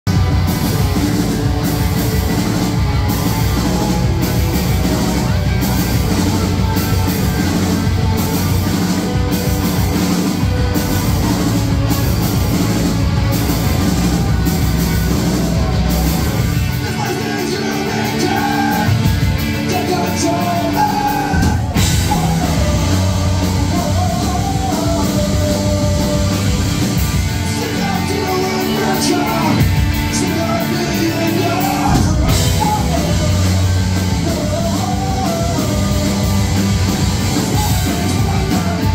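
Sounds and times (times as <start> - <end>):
bass guitar: 0.0 - 38.9
drum kit: 0.0 - 38.9
electric guitars: 0.0 - 38.9
person singing: 12.8 - 38.9.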